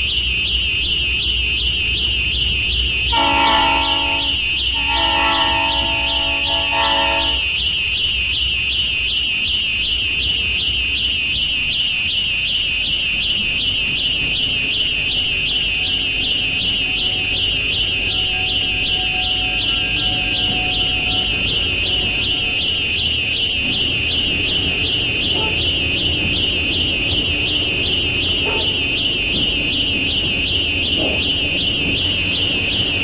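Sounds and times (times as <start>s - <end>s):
high warbling alarm tone: 0.0s - 33.0s
train horn chord: 3.1s - 7.6s, 16.2s - 22.8s, 28.4s - 28.9s.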